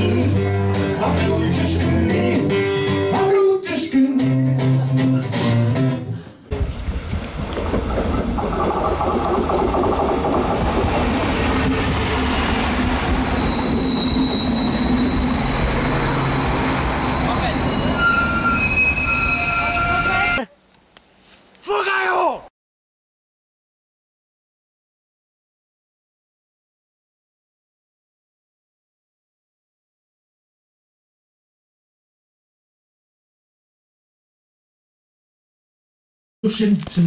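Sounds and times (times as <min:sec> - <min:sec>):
train rumbling into station: 0:06.1 - 0:20.5
high wheel squeals: 0:12.1 - 0:20.4.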